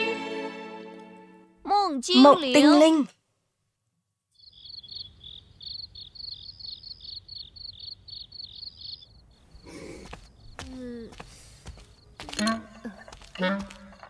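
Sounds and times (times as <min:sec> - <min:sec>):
crickets chirping: 0:03.5 - 0:14.0.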